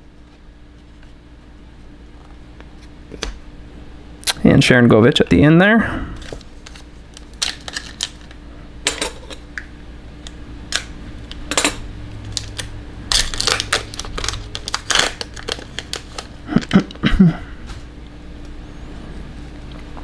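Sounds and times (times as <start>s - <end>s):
foil card pack opening: 6.2s - 8.4s, 12.3s - 17.0s.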